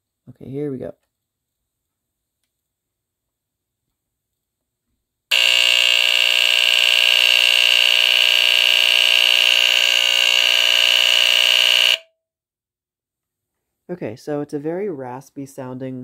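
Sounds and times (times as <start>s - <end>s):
smoke alarm raspy buzz: 5.3s - 12.1s.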